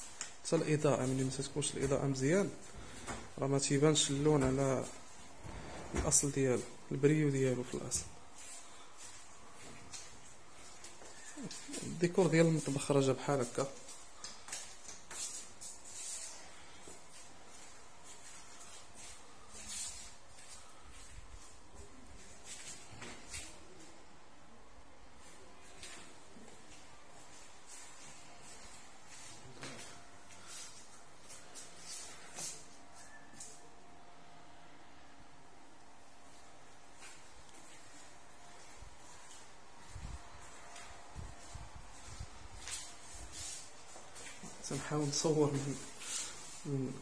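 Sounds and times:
room tone hiss: 0.0 - 47.0.

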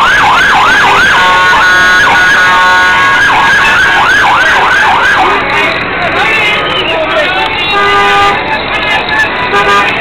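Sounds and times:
siren yelping: 0.0 - 5.5
steady blaring horn tone: 0.0 - 5.8, 6.4 - 10.0.

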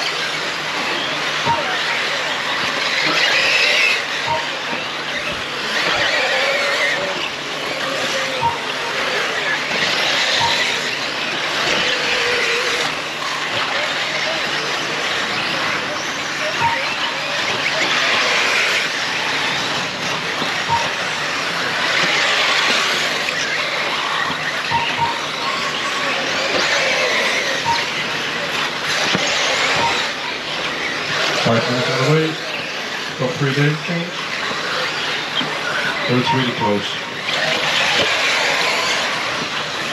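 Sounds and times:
electric motors whining: 0.0 - 39.9.

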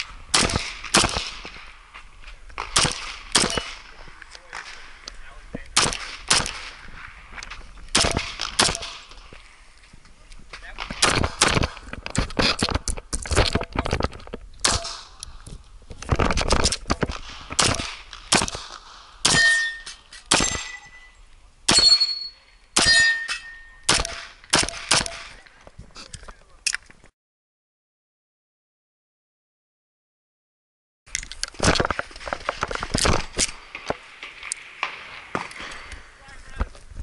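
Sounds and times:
pistol shots: 0.3 - 1.6, 2.6 - 4.8, 5.8 - 6.8, 7.9 - 9.1, 10.8 - 11.8, 14.6 - 15.2, 17.5 - 21.0, 22.8 - 25.4
metallic ping of steel targets: 19.2 - 25.3.

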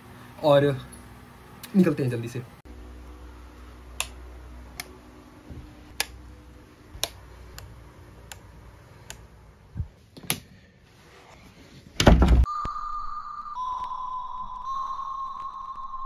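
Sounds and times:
low steady hum: 2.4 - 10.0.

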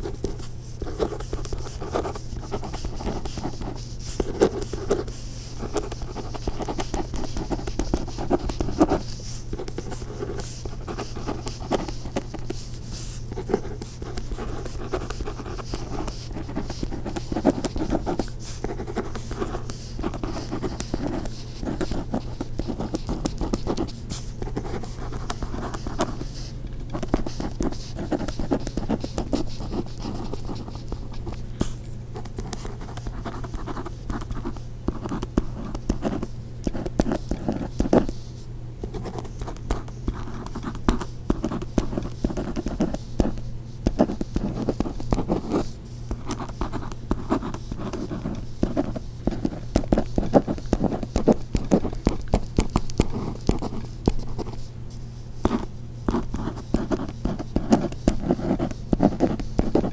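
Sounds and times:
pen scratching on paper: 0.0 - 38.2, 38.8 - 54.7, 55.4 - 59.9
steady low hum: 0.0 - 59.9.

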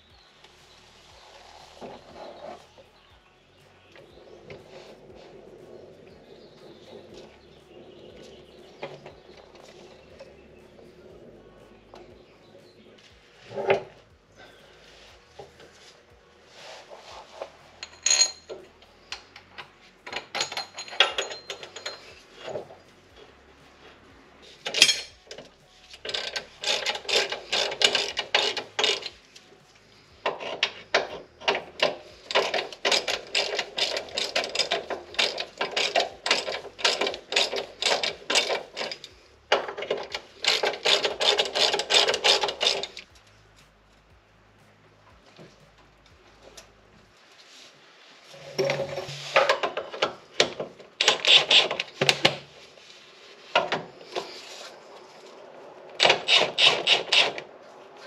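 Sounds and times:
ratchet wrench clicking: 24.6 - 29.4, 30.2 - 43.1, 49.1 - 52.5, 56.0 - 57.4.

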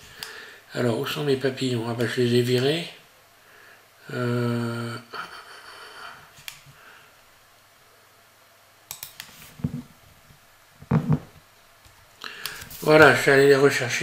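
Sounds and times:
computer mouse clicks: 8.9 - 9.4.

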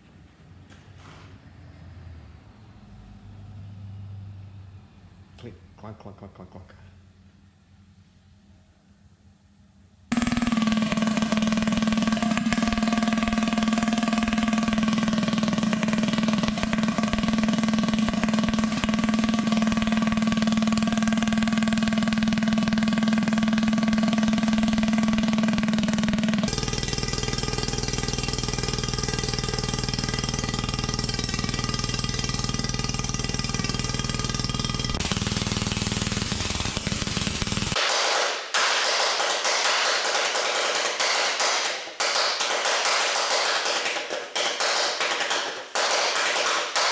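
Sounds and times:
pulse detonation engine drone: 10.1 - 37.8.

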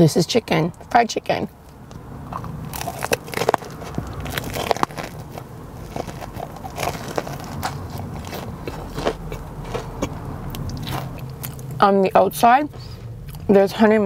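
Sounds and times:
crunchy chewing: 1.9 - 11.8.

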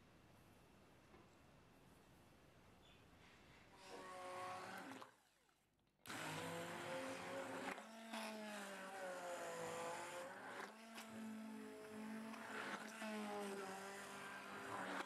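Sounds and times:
stick blender motor whining: 3.8 - 5.1, 6.1 - 15.0.

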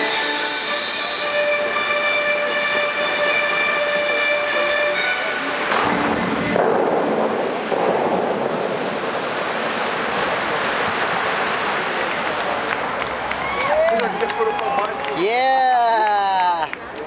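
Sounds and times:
held music chord: 0.0 - 5.7
fountain water spray hissing: 0.0 - 13.9.

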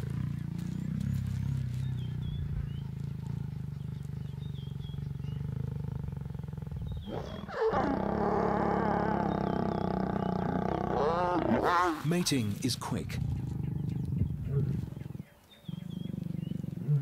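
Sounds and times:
lions growling: 0.0 - 17.0
lion snarling growl: 4.0 - 12.3, 13.0 - 17.0.

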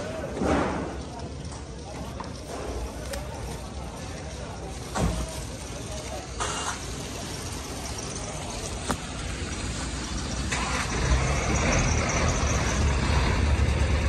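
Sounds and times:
vehicle engine humming: 1.0 - 14.0
woven sack rustling and scraping: 1.8 - 9.3.

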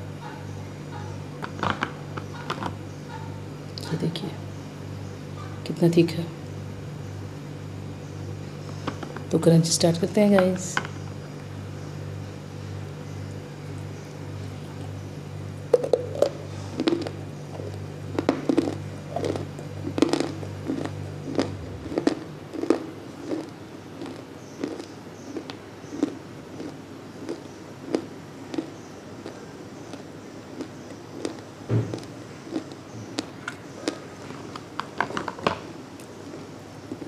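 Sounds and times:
low steady hum: 0.0 - 37.0
clay crunching when chewed: 15.7 - 34.8, 36.0 - 37.0.

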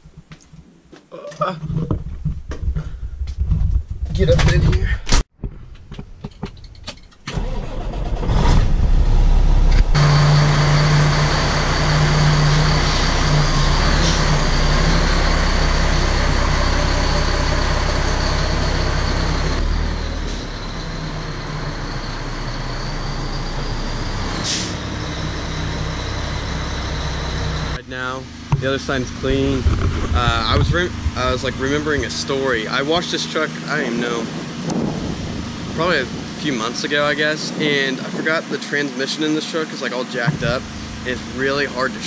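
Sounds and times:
truck engine cranking: 6.2 - 27.8
truck engine running with deep hum: 8.8 - 38.6, 39.8 - 42.0.

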